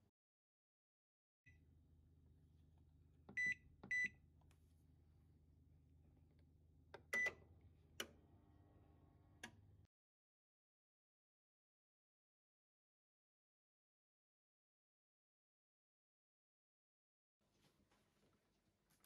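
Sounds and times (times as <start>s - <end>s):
low appliance hum: 2.3s - 9.9s
microwave control panel beeps: 3.3s - 4.2s, 7.0s - 8.1s
microwave click: 9.4s - 9.7s.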